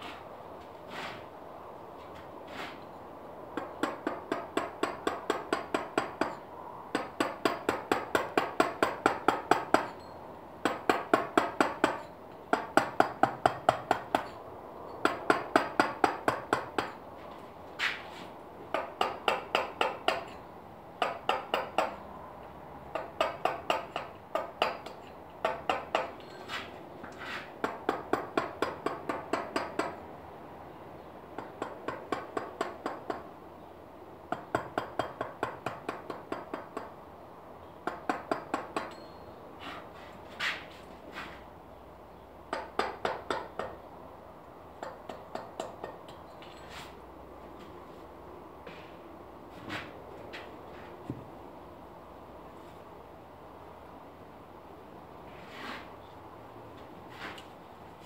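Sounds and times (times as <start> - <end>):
mallet tapping chisel into stone: 18.7 - 20.4, 21.0 - 22.0, 22.9 - 26.2, 42.5 - 43.8, 44.8 - 46.2.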